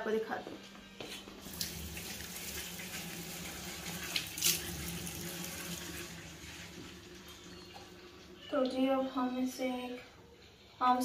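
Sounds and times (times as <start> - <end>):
tap water splashing over hands: 1.4 - 3.2, 3.8 - 5.2.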